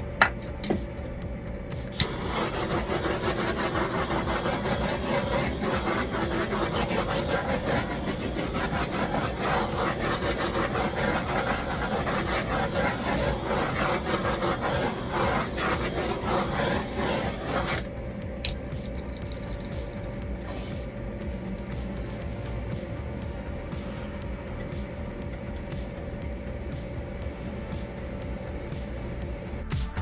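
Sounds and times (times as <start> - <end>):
hair dryer blowing: 1.8 - 18.0.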